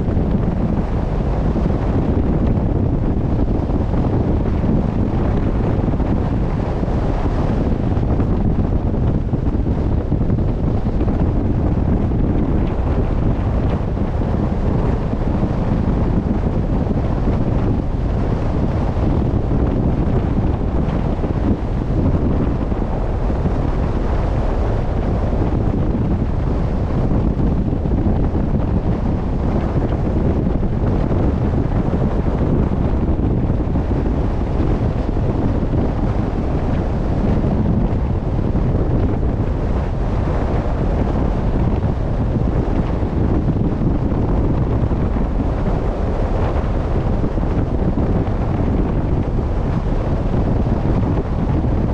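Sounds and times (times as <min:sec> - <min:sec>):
wind blowing across microphone: 0:00.0 - 0:51.9.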